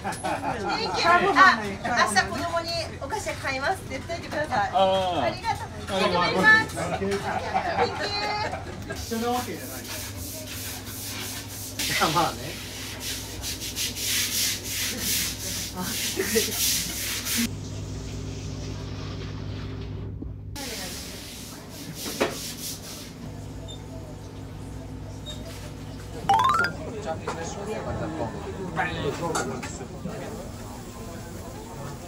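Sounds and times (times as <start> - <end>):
scrubbing brush scouring wet floor: 9.2 - 17.5.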